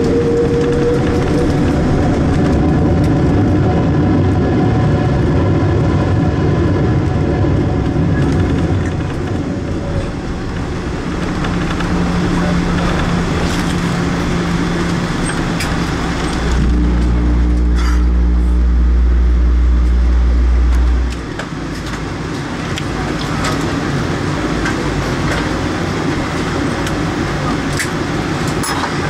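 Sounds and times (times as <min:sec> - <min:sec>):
airplane cabin rumble: 0:00.0 - 0:29.0
deep loud rumble: 0:00.0 - 0:29.0.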